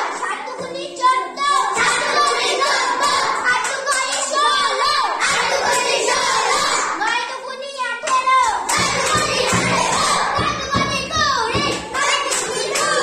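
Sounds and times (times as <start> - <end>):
children singing in chorus: 1.3 - 7.1, 8.6 - 13.0.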